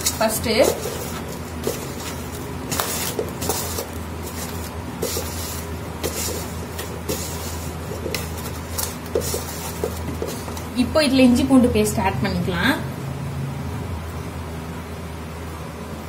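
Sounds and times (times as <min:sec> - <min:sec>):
hand mixing food in bowl: 0:00.0 - 0:11.4
steady low hum: 0:00.0 - 0:16.0.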